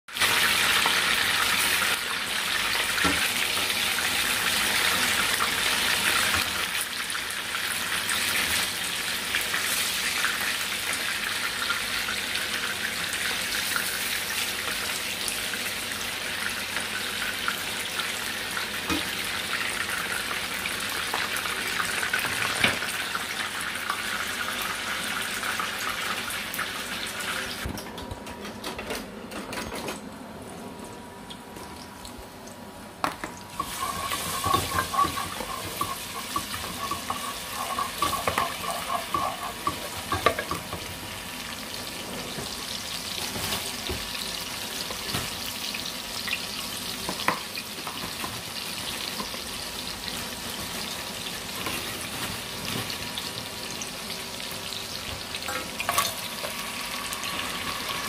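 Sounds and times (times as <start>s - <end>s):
fish sizzling in hot oil: 0.1s - 27.7s, 33.5s - 58.0s
metal spoon tapping pan: 33.2s - 40.7s.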